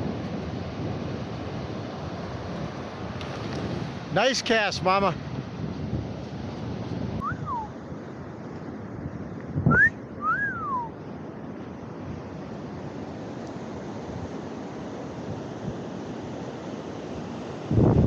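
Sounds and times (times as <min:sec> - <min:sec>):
wind on microphone: 0:00.0 - 0:04.2, 0:04.8 - 0:16.2, 0:17.1 - 0:18.0
ocean surf washing: 0:00.0 - 0:18.0
sliding whistled notes: 0:09.7 - 0:10.9.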